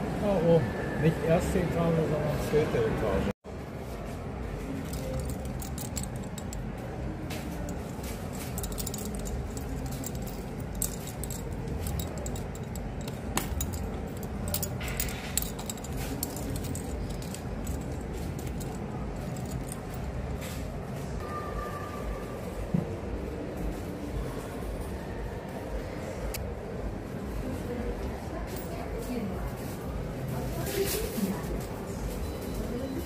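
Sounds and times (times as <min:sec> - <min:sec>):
shop background hum: 0:00.0 - 0:33.0
earrings clinking and jingling: 0:04.6 - 0:21.0.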